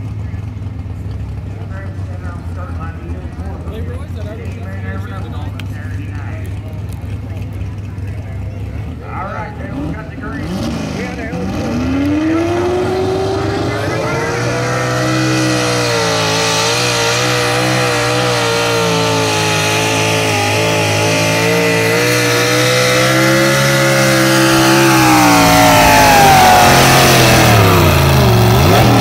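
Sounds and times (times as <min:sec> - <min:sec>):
truck engine revving hard: 0:09.0 - 0:29.0.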